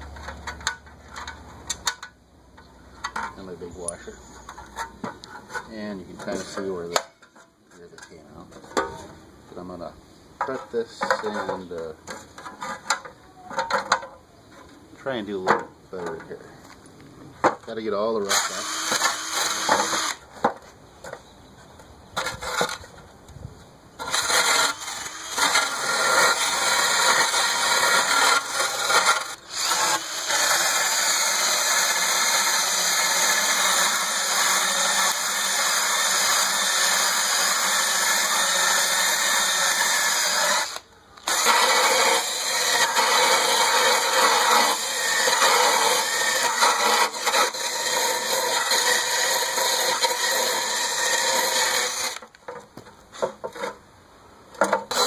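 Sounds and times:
drill wire brush scrubbing metal: 24.1 - 52.2.

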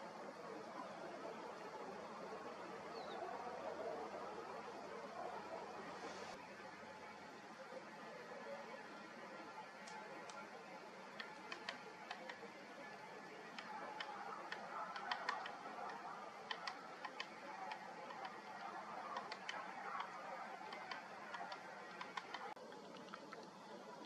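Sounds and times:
woodpecker tapping: 11.1 - 12.5, 13.4 - 23.5.

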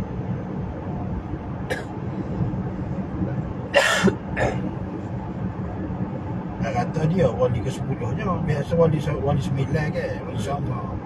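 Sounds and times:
car cabin rumble: 0.0 - 11.0
man coughing: 3.8 - 4.7.

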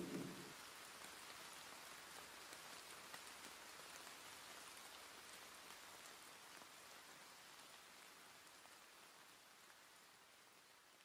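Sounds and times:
rain drop taps: 0.0 - 0.5
faint steady rain: 0.0 - 11.0.

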